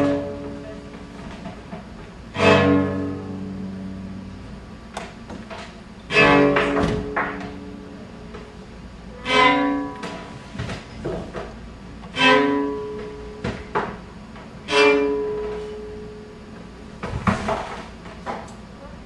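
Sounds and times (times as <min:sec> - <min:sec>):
string instrument chords: 0:00.0 - 0:00.8, 0:02.3 - 0:04.6, 0:06.0 - 0:08.1, 0:09.1 - 0:10.3, 0:12.1 - 0:13.4, 0:14.6 - 0:16.3.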